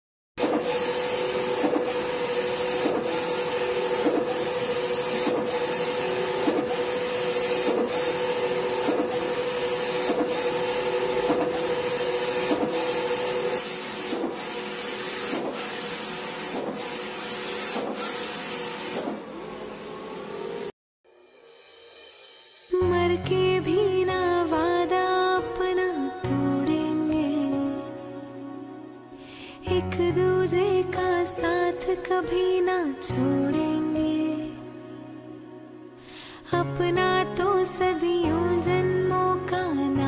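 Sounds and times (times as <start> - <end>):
printer clicking: 0.4 - 19.2
printer whine: 0.4 - 20.7.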